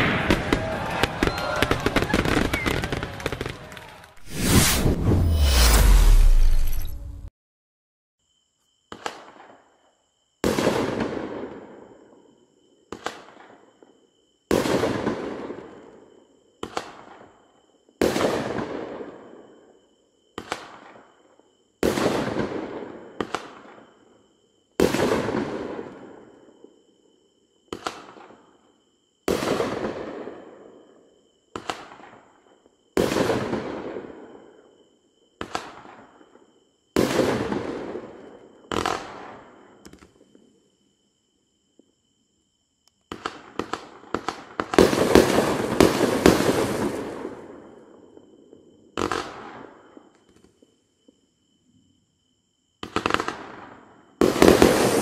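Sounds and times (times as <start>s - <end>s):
fireworks pops and bangs: 0.0s - 5.8s, 8.9s - 9.6s, 12.9s - 13.6s, 16.6s - 17.3s, 21.8s - 23.8s, 27.7s - 28.4s, 31.6s - 32.2s, 35.4s - 36.1s, 38.7s - 40.4s, 43.0s - 47.5s, 49.0s - 50.7s, 52.8s - 55.0s.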